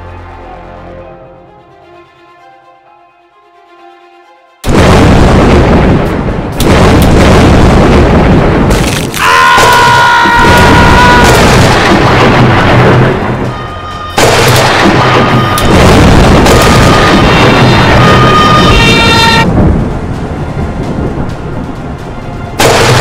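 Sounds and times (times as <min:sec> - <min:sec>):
thunder crashes and rumbling: 0:04.6 - 0:23.0.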